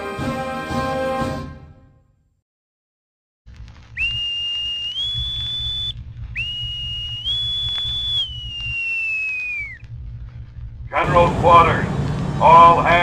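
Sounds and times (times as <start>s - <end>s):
low rumble: 3.5s - 13.0s.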